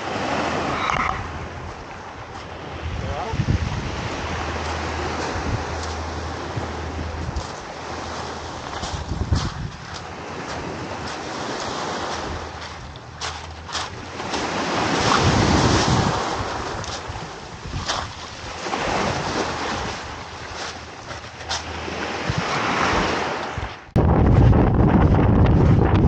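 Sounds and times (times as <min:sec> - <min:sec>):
wind buffeting microphone: 0:00.0 - 0:26.0
small waves breaking on pebbles: 0:07.4 - 0:23.4.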